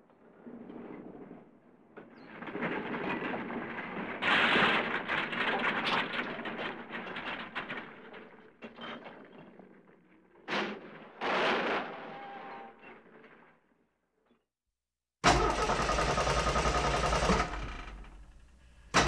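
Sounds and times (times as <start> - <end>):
car starter clicking: 15.3 - 19.0.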